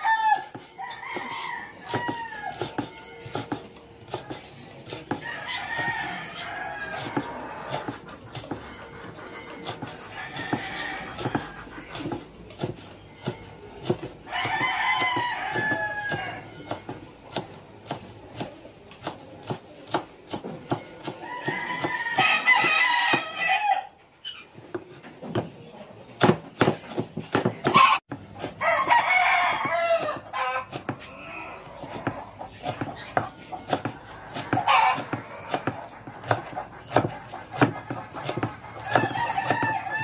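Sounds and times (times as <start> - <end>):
rooster crowing: 0.0 - 2.8, 5.2 - 7.7, 10.1 - 11.7, 14.3 - 16.6, 21.2 - 23.9, 28.6 - 31.8, 38.8 - 40.0
knife chopping on wooden board: 0.2 - 8.8, 9.5 - 23.4, 26.2 - 31.1, 31.8 - 40.0.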